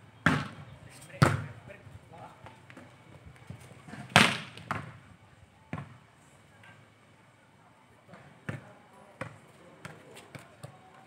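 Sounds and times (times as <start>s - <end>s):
volleyball smack: 4.1s - 4.9s.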